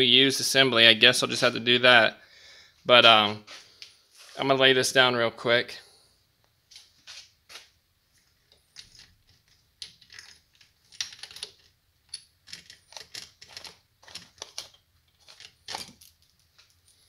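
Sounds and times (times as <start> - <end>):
metal chain clicking and clinking: 8.6 - 17.0.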